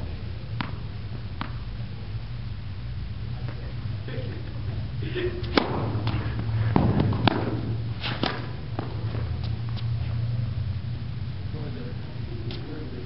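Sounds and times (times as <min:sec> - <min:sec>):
steady low hum: 0:00.0 - 0:13.0
racket strikes and ball bounces: 0:00.5 - 0:01.7, 0:05.4 - 0:09.9.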